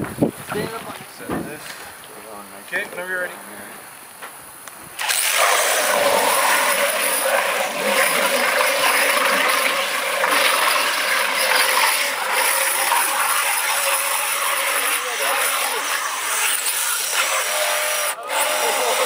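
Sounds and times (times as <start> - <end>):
toy truck motor whine: 10.6 - 19.0.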